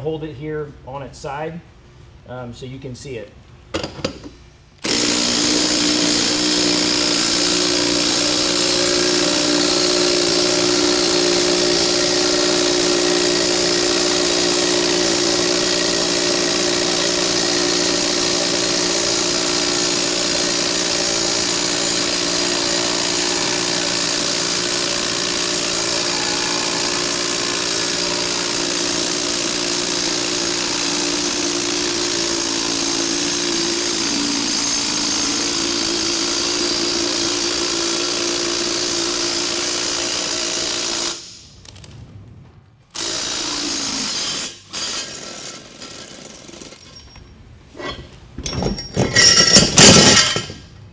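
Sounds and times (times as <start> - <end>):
impact driver hammering a nut: 3.8 - 41.2.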